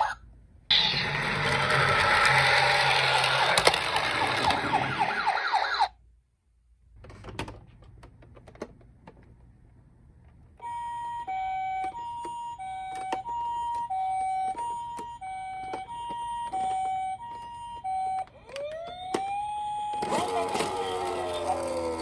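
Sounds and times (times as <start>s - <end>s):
toy siren rising yelps: 0.7s - 6.0s, 10.6s - 22.0s
two-tone hi-lo toy siren: 0.7s - 6.0s, 10.6s - 22.0s.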